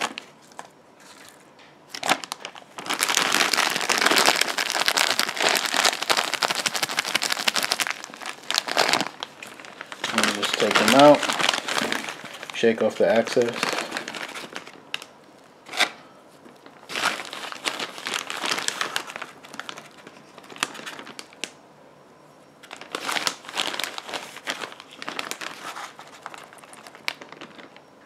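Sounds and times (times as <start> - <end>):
plastic bag crinkling: 0.0 - 21.6, 22.6 - 27.9.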